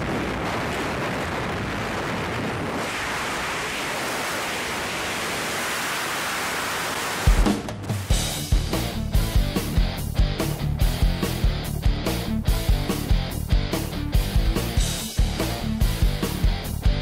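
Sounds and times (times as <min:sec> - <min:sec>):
wind rushing: 0:00.0 - 0:07.4.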